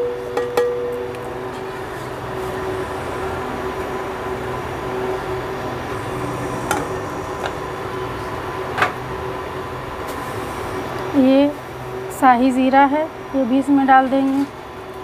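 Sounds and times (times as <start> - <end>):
machine hum: 1.0 - 11.9.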